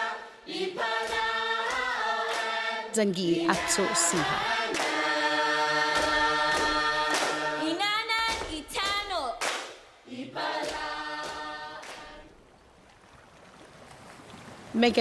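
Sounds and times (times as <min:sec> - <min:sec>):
choir singing held chords: 0:00.0 - 0:08.2, 0:10.0 - 0:12.3.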